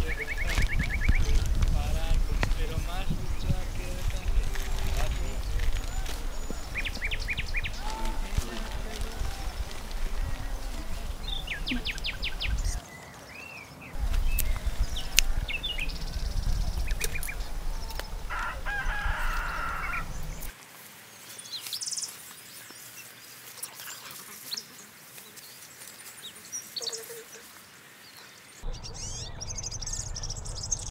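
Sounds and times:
small birds chirping: 0.0 - 30.9
low rumble: 14.0 - 20.5, 28.6 - 30.9
rooster crowing: 15.0 - 20.5.

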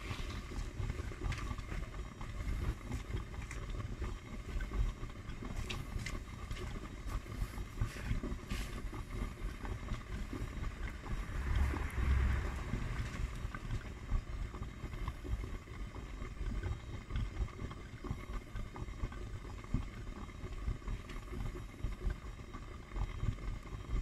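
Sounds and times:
washing machine water sloshing: 0.0 - 16.7
washing machine rumble: 0.0 - 24.0.

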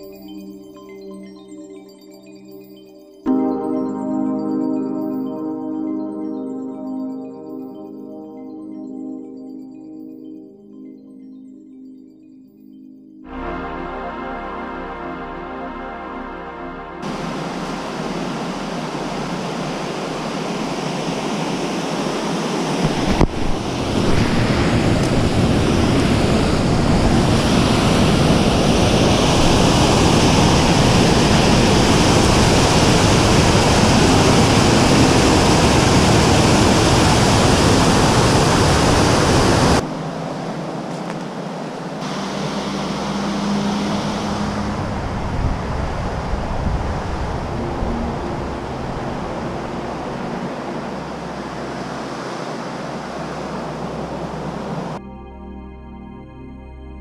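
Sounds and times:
water rushing over spillway: 17.0 - 55.0.

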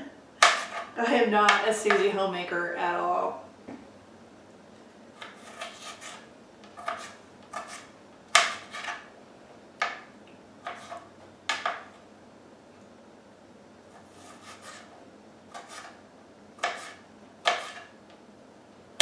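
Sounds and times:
knife chopping food: 0.4 - 0.9, 5.2 - 6.2, 6.8 - 9.1, 9.8 - 11.9, 14.0 - 14.9, 15.5 - 16.0, 16.6 - 17.9.

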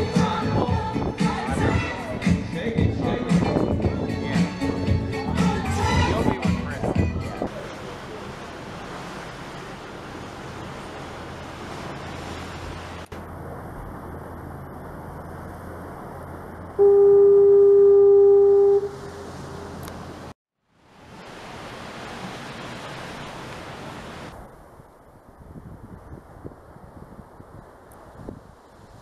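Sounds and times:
horn blast: 16.8 - 19.8
wind noise: 24.3 - 29.0.

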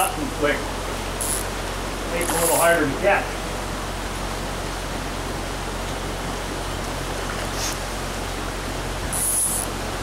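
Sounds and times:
high hiss: 0.0 - 3.4, 9.1 - 9.8
stream water rushing over rocks: 0.0 - 10.0.

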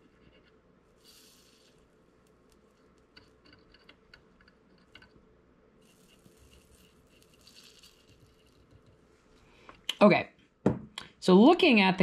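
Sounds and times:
soldering iron sizzling: 0.9 - 3.4, 5.8 - 8.8.

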